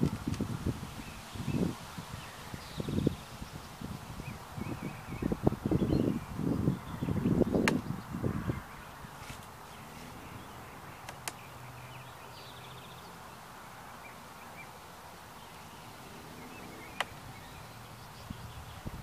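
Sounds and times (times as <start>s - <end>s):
birds chirping: 0.0s - 19.0s
sharp clicks: 11.0s - 11.4s, 17.0s - 17.2s.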